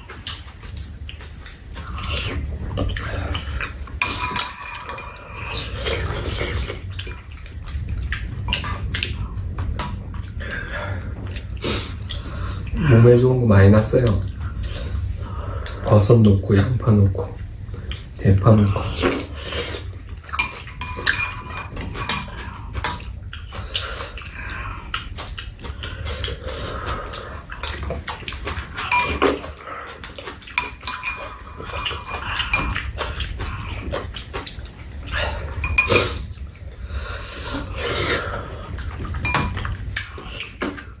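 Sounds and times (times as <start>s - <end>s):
slurping and chewing: 0.0s - 13.4s, 14.0s - 41.0s
metal spoons clicking against bowls: 3.4s - 5.7s, 20.3s - 23.1s, 28.8s - 29.6s, 30.2s - 33.2s, 35.6s - 36.2s, 39.2s - 40.8s.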